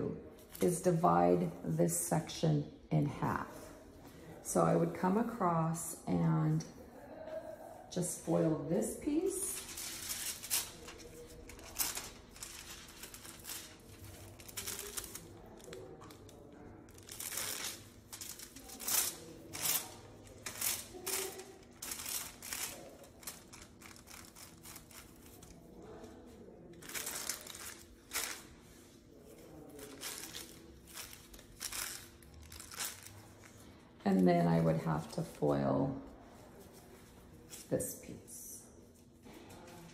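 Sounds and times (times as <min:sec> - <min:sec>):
foil crinkling: 0:09.4 - 0:33.7.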